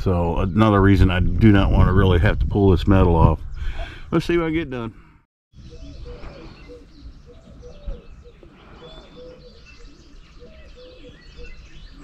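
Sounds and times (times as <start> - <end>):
higher bird chirps: 5.5 - 12.0
short low bird calls: 5.6 - 12.0.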